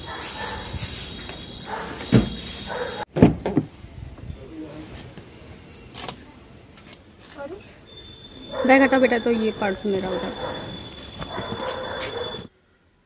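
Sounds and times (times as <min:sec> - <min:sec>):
car door thumps and knocks: 0:02.1 - 0:02.4, 0:03.1 - 0:03.7.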